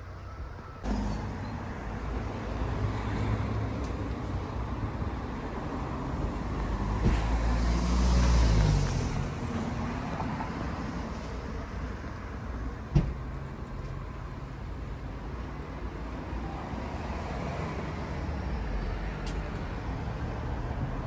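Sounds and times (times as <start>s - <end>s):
rumble of cars: 0.0s - 21.0s
vehicle passing: 5.8s - 10.6s.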